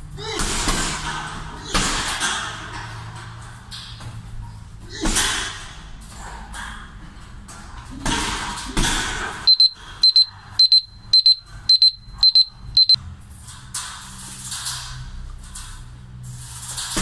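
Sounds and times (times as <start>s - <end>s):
gym timer double beeps: 9.4s - 13.0s.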